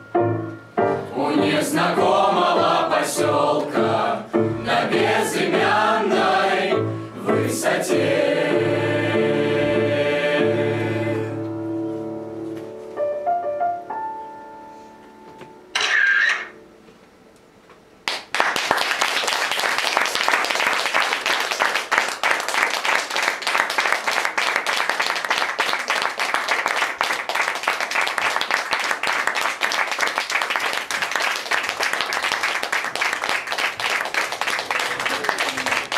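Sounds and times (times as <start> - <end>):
audience applause: 18.0 - 35.9.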